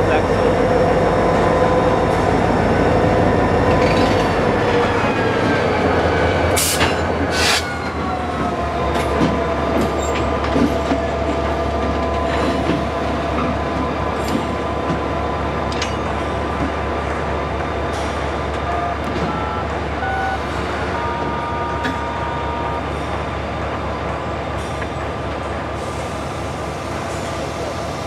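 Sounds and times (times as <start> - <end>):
diesel locomotive engine: 0.0 - 28.0
train cars clanking: 3.0 - 20.0.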